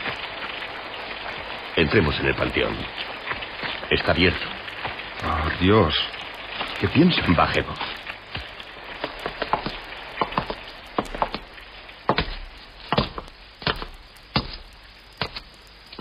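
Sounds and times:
faint hiss: 0:00.0 - 0:16.0
footsteps going down steps: 0:07.8 - 0:16.0.

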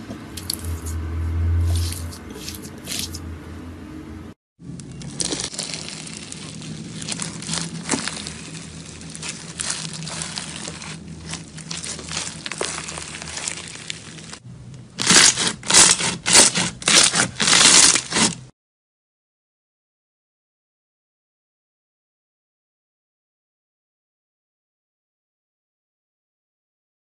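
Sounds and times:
bead slime crackling: 0:04.8 - 0:14.4, 0:15.0 - 0:18.4
loud quick crunches: 0:15.0 - 0:18.5.

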